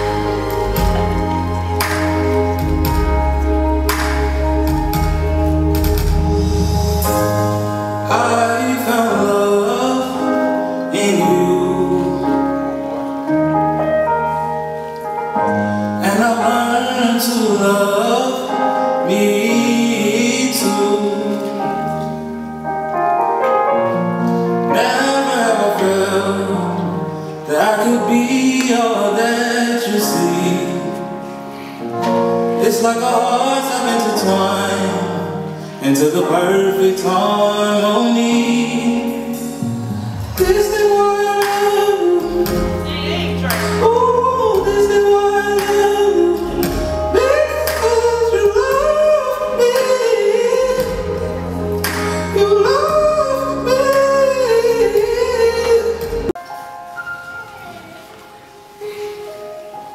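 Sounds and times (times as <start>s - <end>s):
sustained piano chords: 0.0s - 59.9s
man singing into a microphone: 6.9s - 13.4s, 15.7s - 22.3s, 24.3s - 56.4s.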